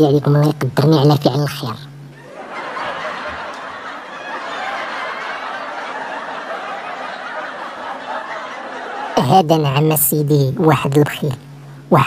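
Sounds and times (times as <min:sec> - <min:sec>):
crowd laughing: 0:02.1 - 0:09.8.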